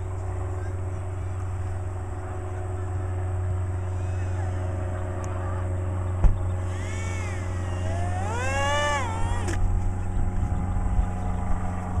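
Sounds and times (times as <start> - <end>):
model plane motor whining: 2.9 - 12.0.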